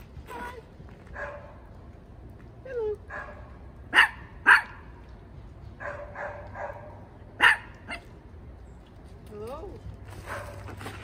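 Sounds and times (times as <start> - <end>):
small dog barking: 3.1 - 4.8, 5.8 - 8.1.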